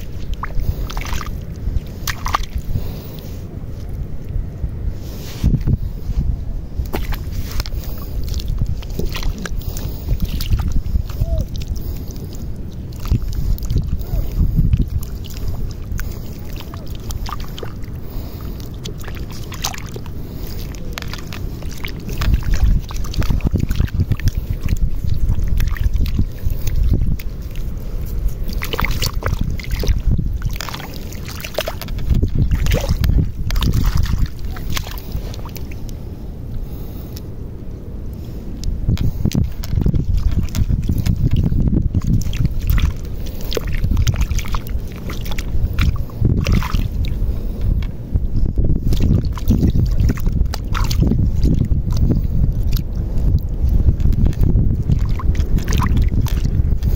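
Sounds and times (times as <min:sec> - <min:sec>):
seawater sloshing and splashing: 0:00.0 - 0:04.0, 0:04.9 - 0:37.2, 0:38.2 - 0:56.9
low rumble: 0:00.0 - 0:56.9
hand digging in wet sand: 0:05.0 - 0:36.0.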